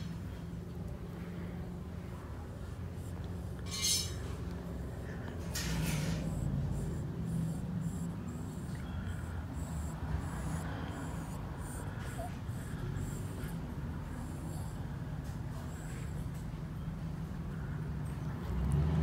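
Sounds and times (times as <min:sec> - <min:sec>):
metallic clink: 0:03.6 - 0:04.3.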